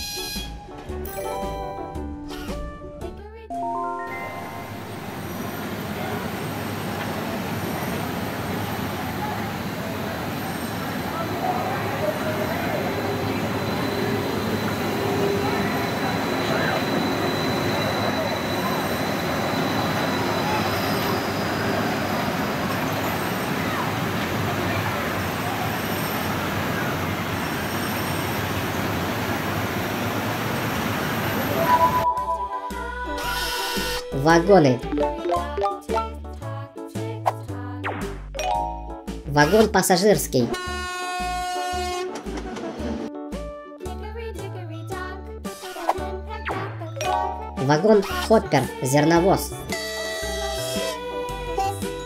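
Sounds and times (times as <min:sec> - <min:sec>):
monorail train rushing on track: 0:04.6 - 0:32.0.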